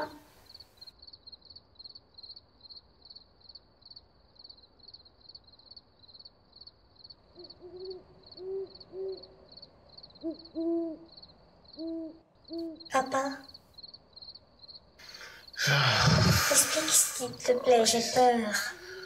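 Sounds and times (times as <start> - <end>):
crickets chirping: 0.0 - 19.0
owl hooting: 7.4 - 9.4, 10.2 - 13.5, 16.0 - 19.0.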